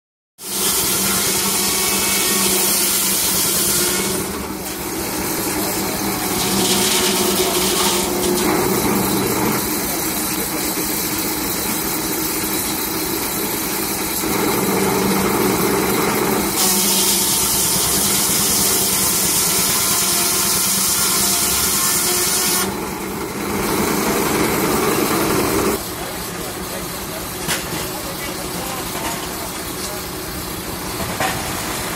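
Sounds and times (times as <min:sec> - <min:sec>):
saw blade hissing through wood: 0:00.4 - 0:10.1, 0:16.5 - 0:22.8
saw blade humming: 0:00.4 - 0:27.2.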